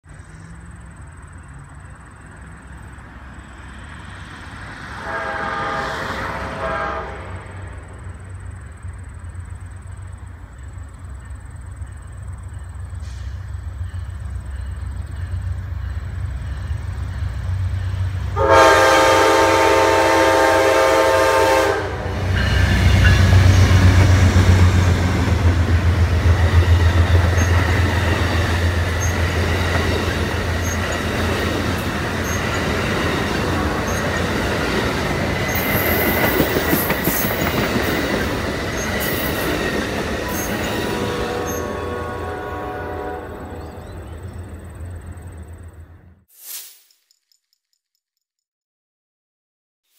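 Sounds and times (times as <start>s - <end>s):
train air horn: 4.8s - 7.9s, 18.3s - 24.8s, 33.1s - 34.3s, 40.3s - 44.0s
locomotive engine rumble: 7.2s - 46.1s
train wheel clatter: 22.3s - 41.7s
wheel squeal: 27.3s - 27.8s, 28.9s - 29.3s, 30.6s - 31.2s, 32.2s - 32.8s, 33.8s - 34.2s, 40.3s - 40.9s.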